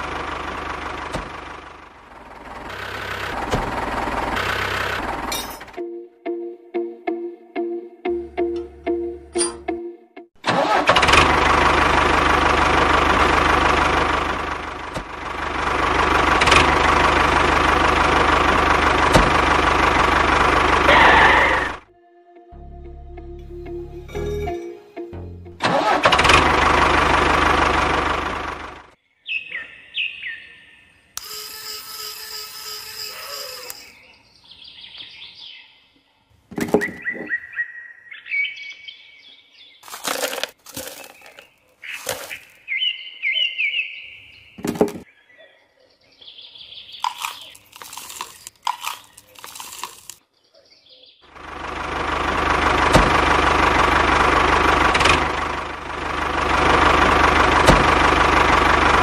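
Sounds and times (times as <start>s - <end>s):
bird-like chirps: 29.1s - 31.2s, 33.1s - 39.9s, 41.0s - 49.4s
small electric motor whirring: 31.2s - 34.0s.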